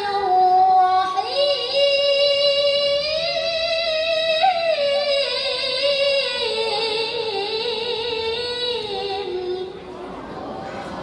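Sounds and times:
woman chanting through loudspeaker: 0:00.0 - 0:10.0.

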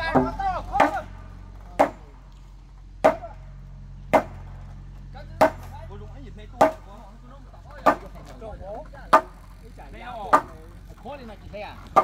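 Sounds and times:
hammer striking timber beams: 0:00.0 - 0:02.2, 0:03.0 - 0:03.5, 0:04.1 - 0:04.8, 0:05.4 - 0:05.8, 0:06.5 - 0:07.0, 0:07.6 - 0:08.4, 0:09.0 - 0:11.0.

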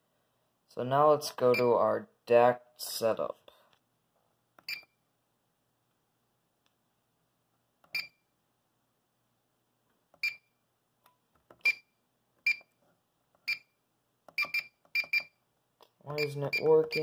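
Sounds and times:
high-pitched keypad beeps: 0:14.4 - 0:15.3, 0:16.1 - 0:17.0.

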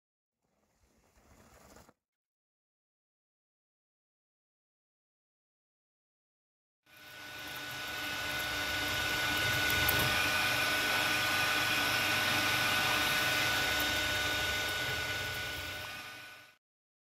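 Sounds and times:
milling machine humming and whining: 0:06.9 - 0:16.6.

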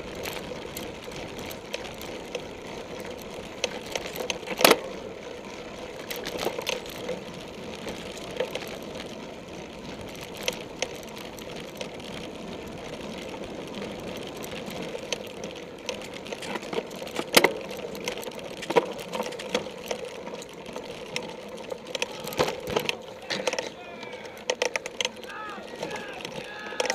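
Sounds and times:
bike rattling over bumps: 0:00.0 - 0:26.9
bike tyres and chain whirring: 0:00.0 - 0:26.9.

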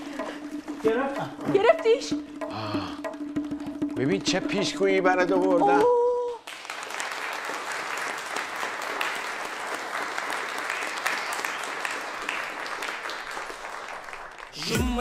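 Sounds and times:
audience applause: 0:06.4 - 0:14.9.

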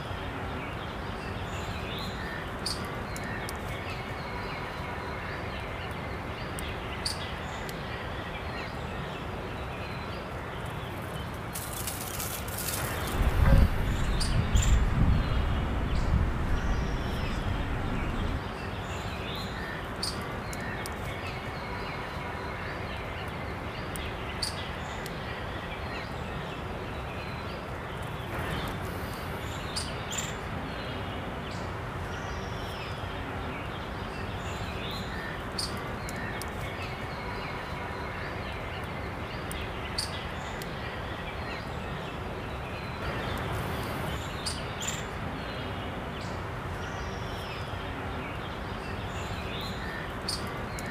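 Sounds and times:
steady background hiss: 0:00.0 - 0:50.9
high bird chirps: 0:12.7 - 0:18.4.

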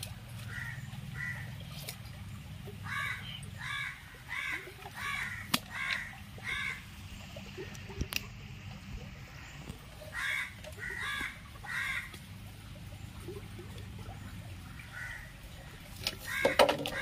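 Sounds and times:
low steady rumble: 0:00.0 - 0:16.4
crow cawing: 0:00.5 - 0:01.5, 0:02.9 - 0:06.8, 0:10.1 - 0:12.1, 0:14.9 - 0:15.2, 0:16.3 - 0:17.0.

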